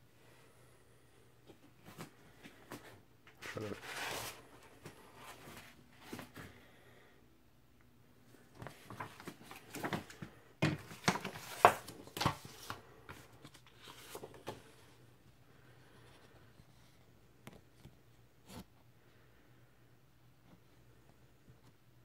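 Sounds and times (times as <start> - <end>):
paper and cardboard rustling: 2.7 - 6.4, 8.6 - 14.8.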